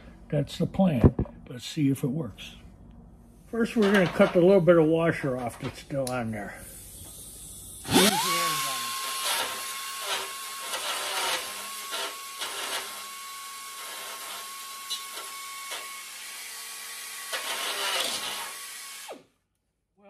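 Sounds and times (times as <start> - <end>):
cut-off tool whining: 6.7 - 19.4
abrasive disc grinding metal: 7.9 - 13.1.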